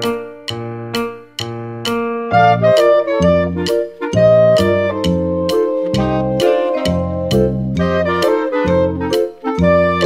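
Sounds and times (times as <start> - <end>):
held keyboard notes: 0.0 - 10.0
instrumental music with steady beat: 0.0 - 10.0.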